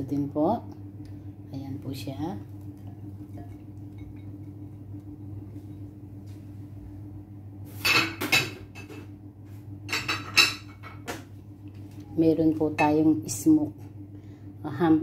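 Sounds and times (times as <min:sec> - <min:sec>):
steady low hum: 0:00.0 - 0:15.0
glass bowls clinking on countertop: 0:02.9 - 0:04.6.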